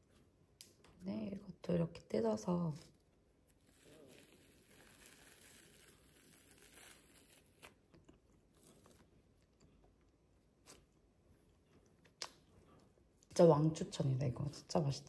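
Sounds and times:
bread tearing and crackling: 3.4 - 9.9.

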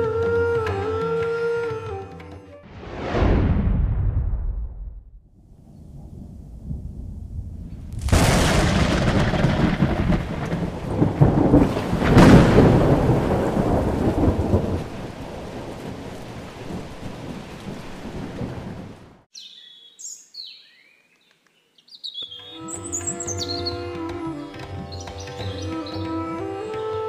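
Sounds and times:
thunder crack: 2.7 - 19.2
thunder rumble: 2.7 - 19.2
heavy rain hiss: 8.0 - 19.1
bird chirps: 19.3 - 23.8.

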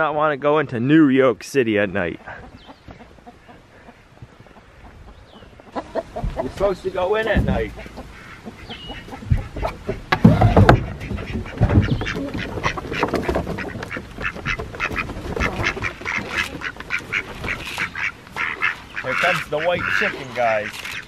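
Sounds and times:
chickens clucking: 0.8 - 21.0
ducks quacking: 1.9 - 21.0
wooden door knocks: 7.3 - 7.8.

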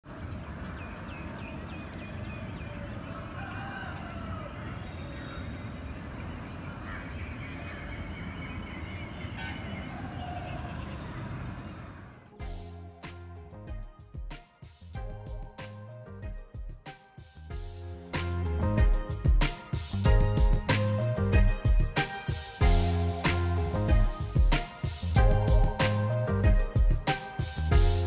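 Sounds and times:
birds chirping: 0.0 - 12.6
bird calls rising and falling: 0.3 - 12.5.

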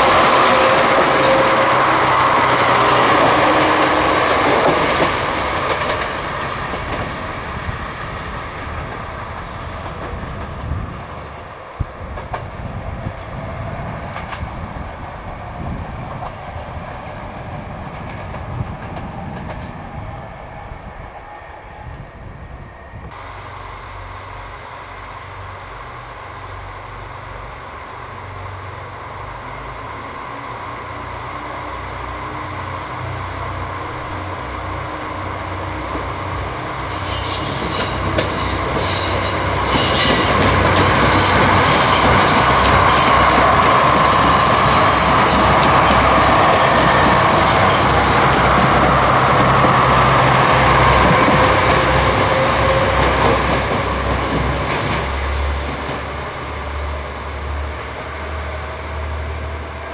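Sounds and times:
train wheel clatter: 0.0 - 7.6, 36.8 - 56.8
diesel train engine hum: 0.0 - 59.9
train whine: 0.0 - 59.9.

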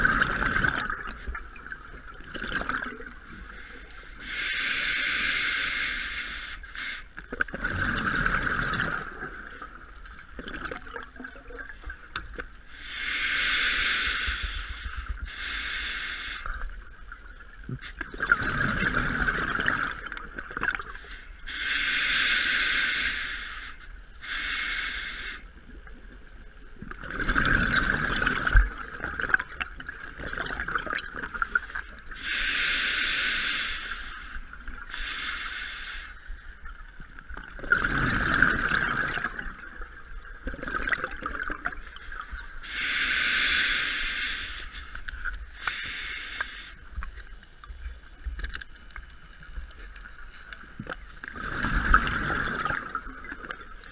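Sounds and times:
bubbling exhale underwater: 0.0 - 3.2, 7.3 - 9.7, 18.0 - 20.9, 27.0 - 31.7, 37.5 - 41.8, 50.9 - 53.9
diver breathing through regulator: 3.4 - 7.2, 12.7 - 16.7, 20.9 - 25.5, 32.2 - 36.4, 42.0 - 47.1.

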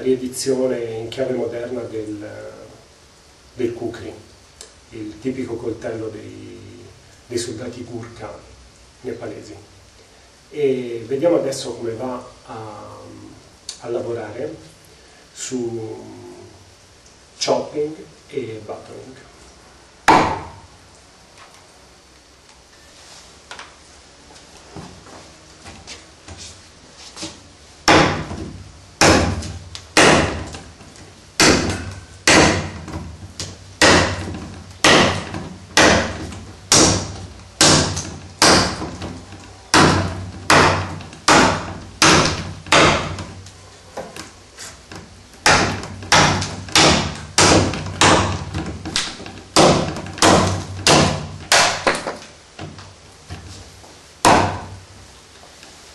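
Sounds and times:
knife chopping into wooden pole: 20.1 - 20.6, 27.9 - 30.6, 31.4 - 43.3, 45.4 - 52.2, 54.3 - 54.7.

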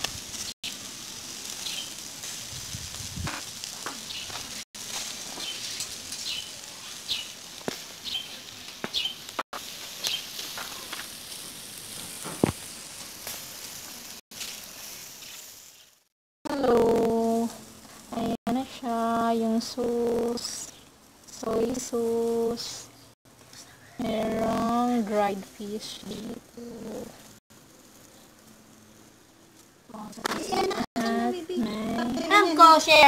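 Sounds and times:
skewers sizzling on a grill: 0.0 - 33.0
pops and crackles: 2.9 - 6.3, 7.6 - 8.0, 8.6 - 15.9.

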